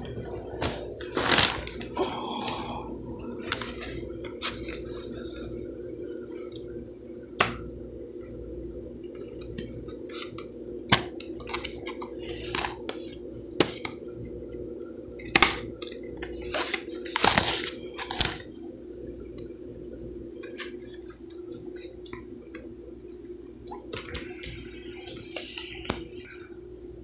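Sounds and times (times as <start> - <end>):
steady low hum: 0.0 - 27.0
plastic packaging clicks and crinkles: 15.2 - 18.5.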